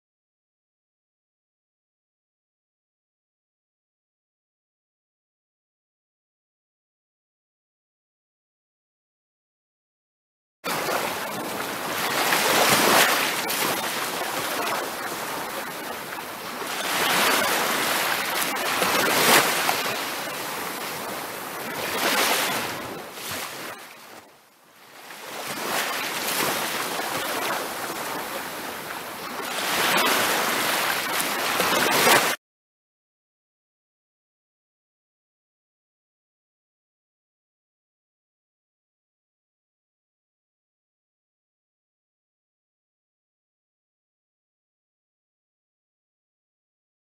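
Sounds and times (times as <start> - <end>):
ocean surf washing up: 10.7 - 32.4.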